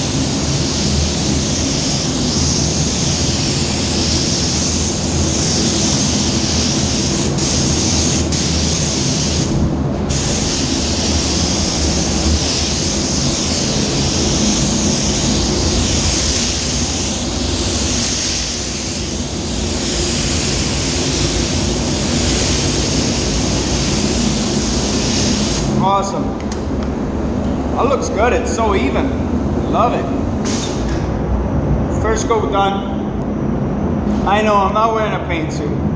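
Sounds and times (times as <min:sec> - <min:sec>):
spray gun hissing: 0:00.0 - 0:25.8
spray booth fans droning: 0:00.0 - 0:35.9.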